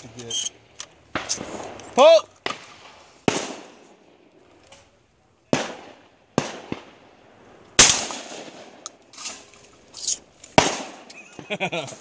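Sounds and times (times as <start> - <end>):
shotgun firing: 1.1 - 4.0, 5.5 - 7.0, 7.8 - 8.8, 10.6 - 11.1.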